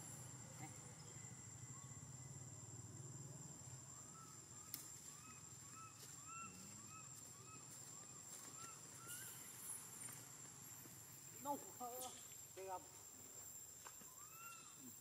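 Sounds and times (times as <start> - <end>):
faint animal calls: 3.8 - 10.2, 14.0 - 15.0.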